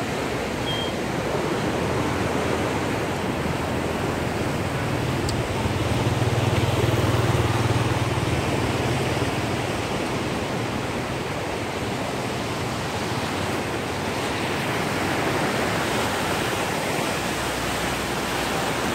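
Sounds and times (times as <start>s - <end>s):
water rushing through sluice gates: 0.0s - 18.9s.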